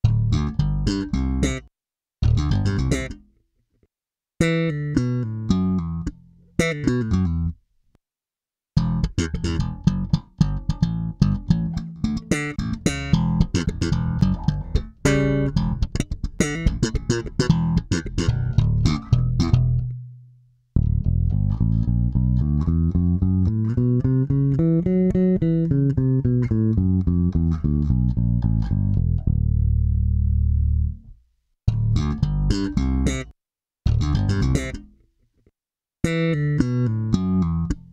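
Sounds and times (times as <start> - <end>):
electric bass playing: 0.0 - 1.6, 2.2 - 3.2, 8.8 - 20.2, 20.8 - 33.3, 33.9 - 34.9, 36.0 - 37.9.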